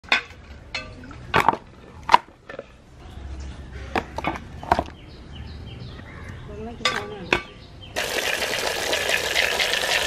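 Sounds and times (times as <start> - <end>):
water pouring and splashing: 8.0 - 10.0.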